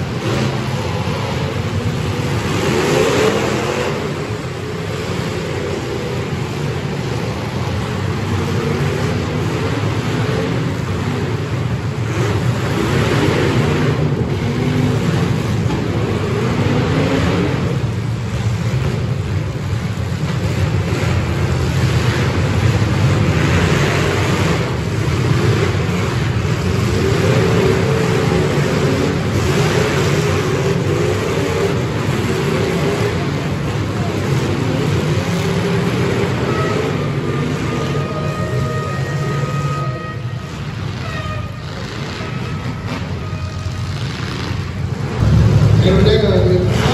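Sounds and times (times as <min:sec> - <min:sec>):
many car engines revving: 0:00.0 - 0:46.9.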